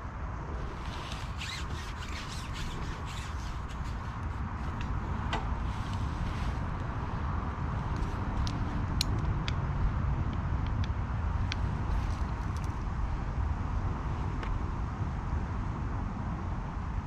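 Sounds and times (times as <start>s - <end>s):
steady low rumble: 0.0s - 17.0s
rustling zip-like scrapes: 0.6s - 7.1s.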